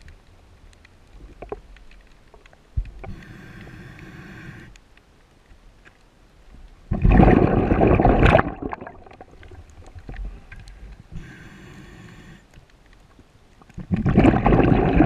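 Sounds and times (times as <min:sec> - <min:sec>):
regulator inhale hiss: 0:03.0 - 0:04.8, 0:10.2 - 0:12.6
rush of exhaled bubbles: 0:06.9 - 0:09.6, 0:13.8 - 0:15.0.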